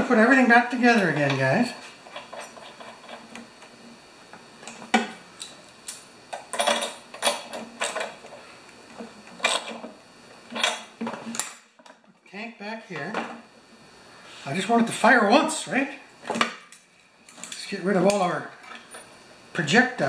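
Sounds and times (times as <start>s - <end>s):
metal tools clinking on tray: 6.5s - 8.1s.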